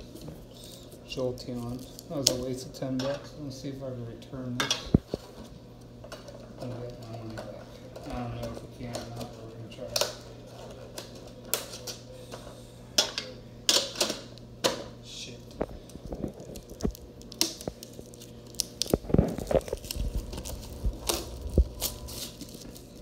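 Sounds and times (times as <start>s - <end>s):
foil wrappers crinkling: 15.5s - 23.0s.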